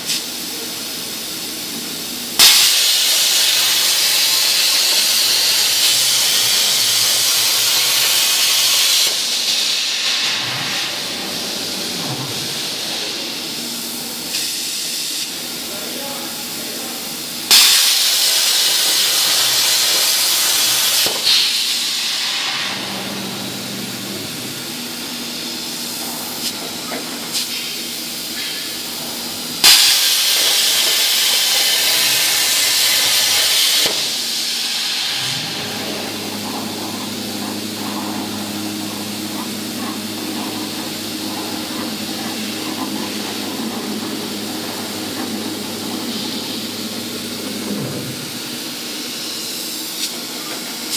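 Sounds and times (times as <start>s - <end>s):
plasma torch hissing: 2.3s - 16.8s, 17.4s - 50.9s
machine hum: 22.0s - 27.2s, 31.8s - 50.8s.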